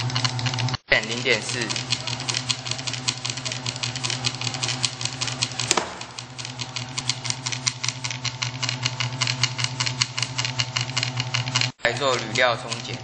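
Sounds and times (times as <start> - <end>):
motor hum: 0.0 - 13.0
punch press clacking: 1.3 - 10.9.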